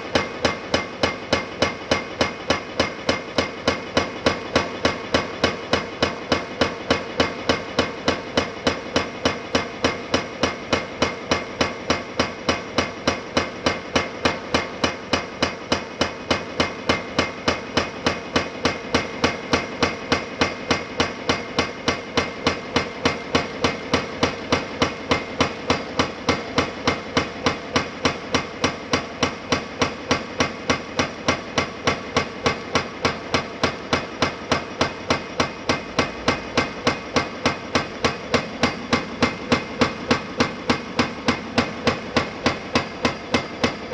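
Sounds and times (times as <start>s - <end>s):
hydraulic breaker hammering concrete: 0.0s - 43.9s.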